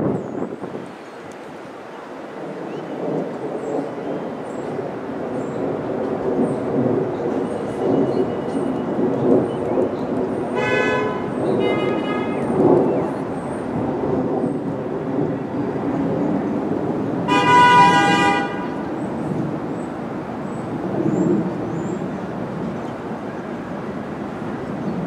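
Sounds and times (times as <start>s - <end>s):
train and street rumble: 0.0s - 25.0s
train horn blasts: 10.5s - 12.6s, 17.3s - 18.9s.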